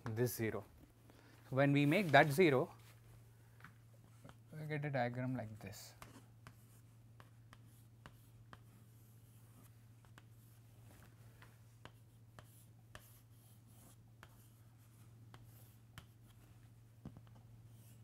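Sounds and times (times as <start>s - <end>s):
chalk tapping on chalkboard: 5.9s - 10.6s, 11.4s - 16.4s, 17.0s - 18.0s.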